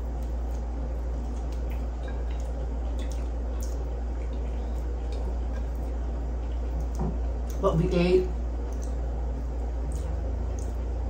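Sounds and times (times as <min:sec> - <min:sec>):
person chewing food: 0:00.0 - 0:07.6, 0:08.6 - 0:11.0
steady low hum: 0:00.0 - 0:11.0
small wet clicks: 0:08.6 - 0:09.1, 0:09.8 - 0:10.8.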